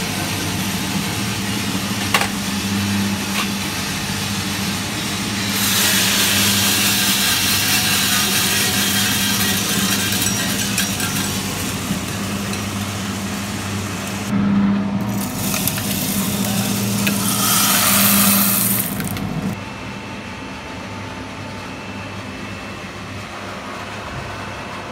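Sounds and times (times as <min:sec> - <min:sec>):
motor and fan hum: 0:00.0 - 0:24.9
coffee beans rattling in tray: 0:05.6 - 0:13.2, 0:15.2 - 0:19.2.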